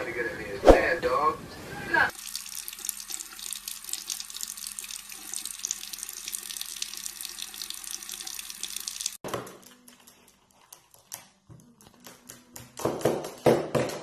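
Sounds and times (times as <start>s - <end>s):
water from faucet splashing into sink: 2.1s - 9.2s.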